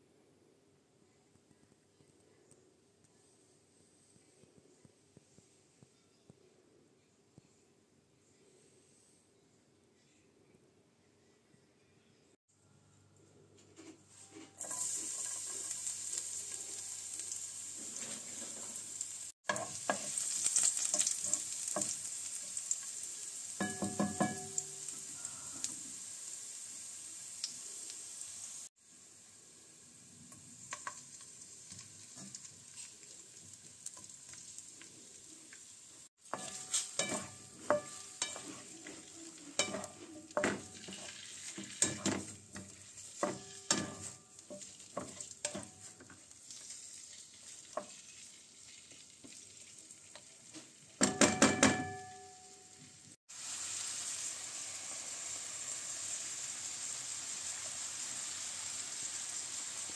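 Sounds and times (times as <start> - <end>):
spatula scraping a wok: 13.6 - 23.0, 36.2 - 48.3
food sizzling in oil: 14.2 - 59.9.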